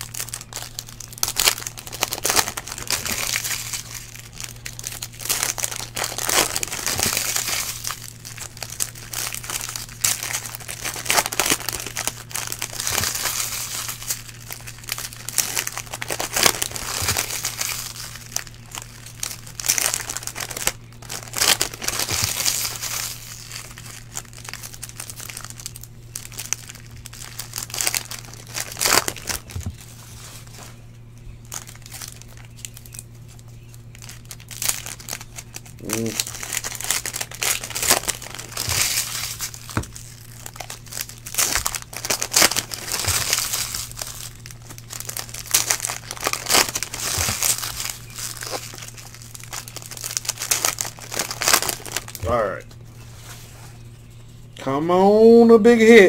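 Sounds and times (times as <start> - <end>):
foil wrappers crinkling and tearing: 0.0 - 54.6
low hum: 0.0 - 56.0.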